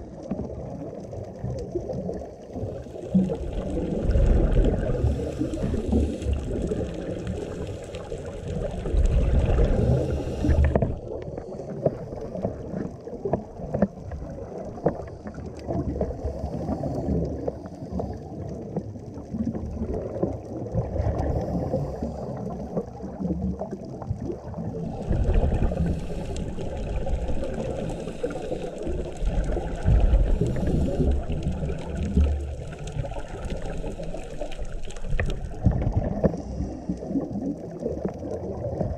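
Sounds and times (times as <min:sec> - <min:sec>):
underwater bubbles gurgling: 0:00.0 - 0:38.9
divers breathing through regulators: 0:04.8 - 0:07.0, 0:09.5 - 0:12.2, 0:24.9 - 0:31.4.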